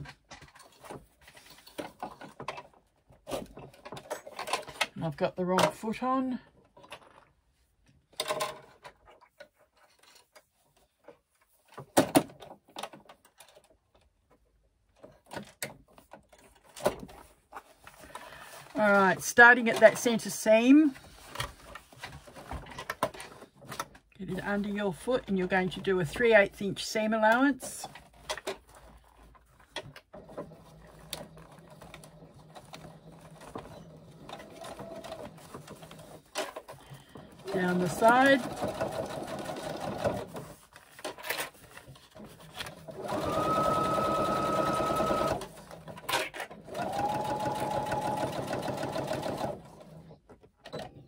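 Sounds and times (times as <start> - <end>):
sewing machine clicks and knocks: 8.1 - 8.9
sewing machine humming: 37.2 - 40.3, 42.8 - 46.0, 46.6 - 50.0.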